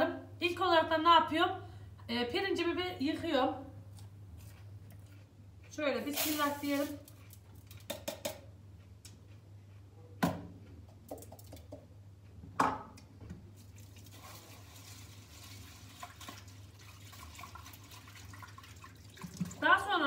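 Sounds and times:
water sloshing in bowl: 13.6 - 19.9.

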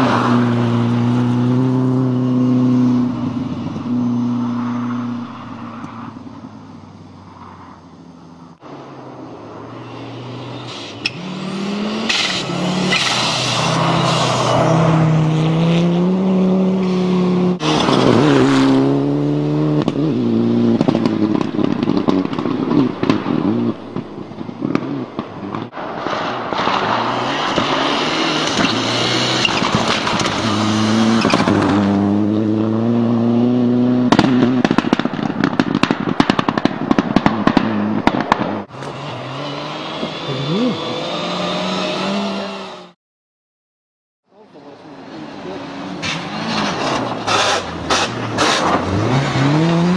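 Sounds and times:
rally car engine revving: 0.0 - 5.2, 10.6 - 25.7, 26.6 - 35.0, 37.3 - 43.0, 45.0 - 49.9.

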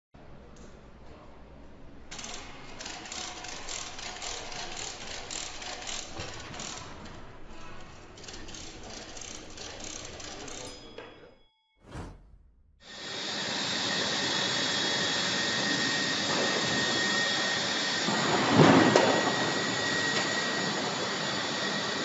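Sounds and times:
rapid mechanical clicking: 2.1 - 10.7.

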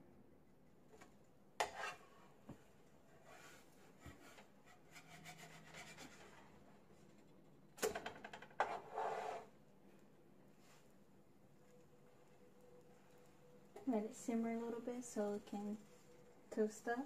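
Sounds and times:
spatula scraping griddle pan: 1.6 - 2.3, 8.6 - 9.5.

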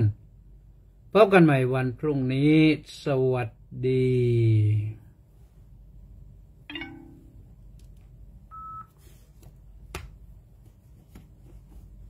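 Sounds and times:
phone tone: 6.7 - 7.4, 8.5 - 9.0.

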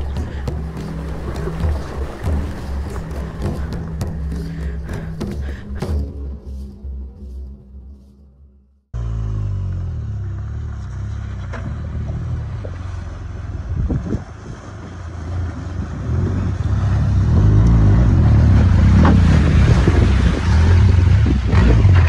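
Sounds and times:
water splashing around wheels: 0.0 - 7.4, 10.5 - 22.0
motorcycle engine running: 0.0 - 8.2.

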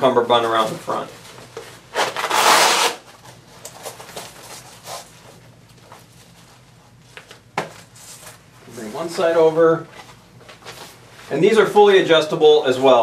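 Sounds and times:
fabric rasp: 1.9 - 3.0.

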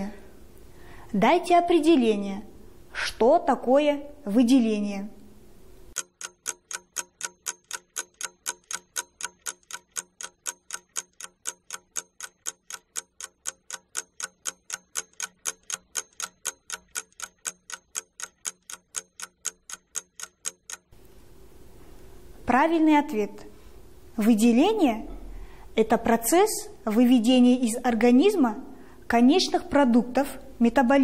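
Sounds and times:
clock ticking: 5.9 - 21.0.

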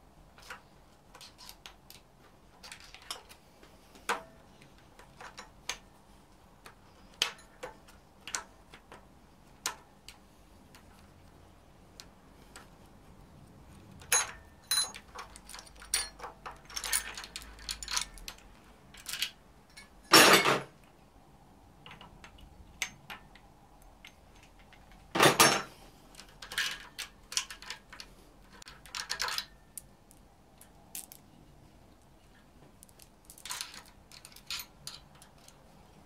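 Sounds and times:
metal chain clinking: 14.1 - 18.4, 32.9 - 35.6.

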